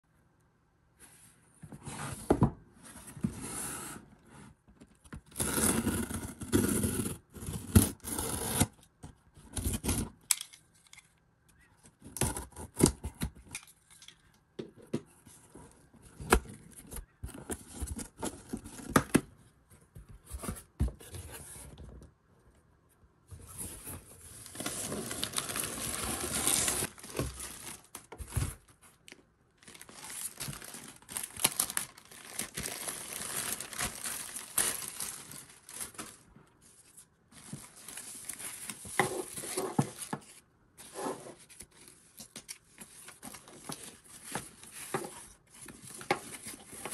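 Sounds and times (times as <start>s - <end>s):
plastic bag crinkling: 24.4s - 28.2s, 29.6s - 36.3s.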